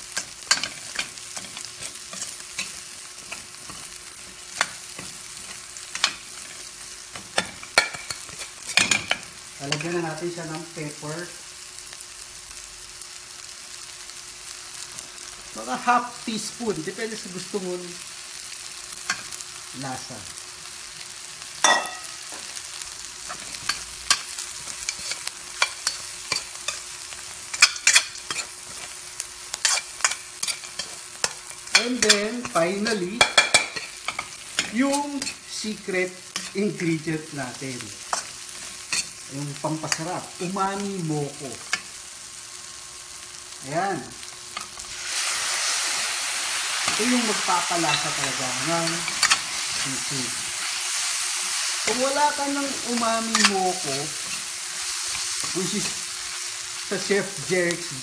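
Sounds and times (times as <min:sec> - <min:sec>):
frying sizzle: 0:00.0 - 0:58.0
metal spatula scraping a pan: 0:00.2 - 0:06.7, 0:23.3 - 0:35.4.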